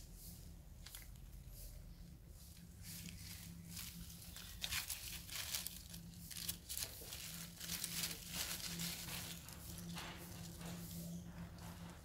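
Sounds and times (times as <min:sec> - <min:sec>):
rustling of dry leaves: 0:02.8 - 0:09.5.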